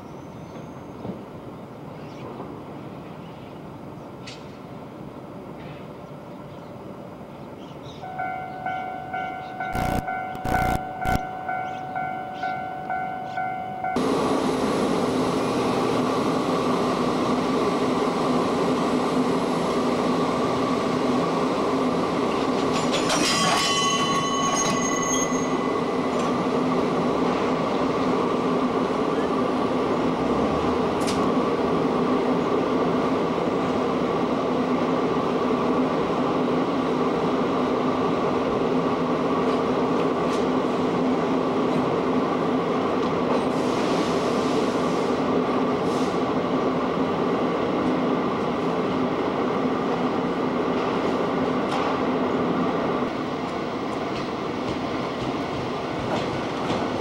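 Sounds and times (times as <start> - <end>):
wheels squealing on rails: 22.3 - 26.5.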